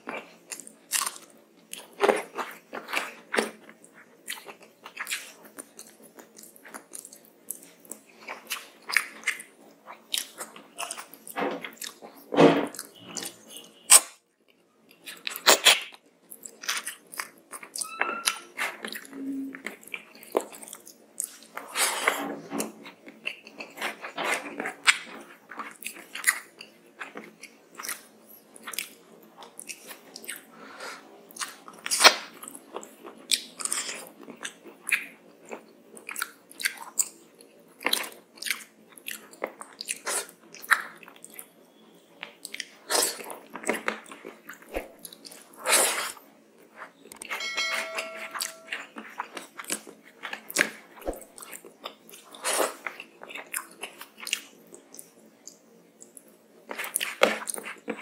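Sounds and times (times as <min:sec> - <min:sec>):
chewing and lip smacks: 0:00.0 - 0:13.3, 0:31.3 - 0:41.5, 0:51.4 - 0:58.0.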